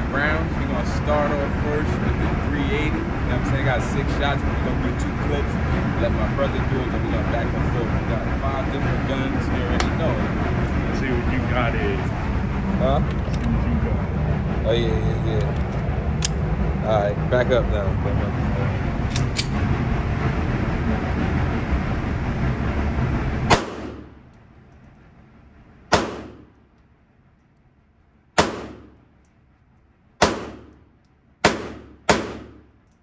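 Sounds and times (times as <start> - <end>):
handgun shots echoing indoors: 25.9 - 26.5, 28.4 - 29.0, 30.2 - 30.8, 31.4 - 32.7.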